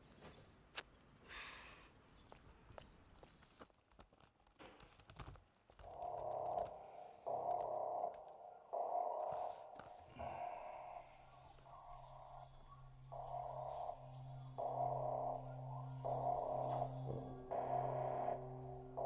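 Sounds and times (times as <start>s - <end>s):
typing on laptop keyboard: 3.2s - 8.4s.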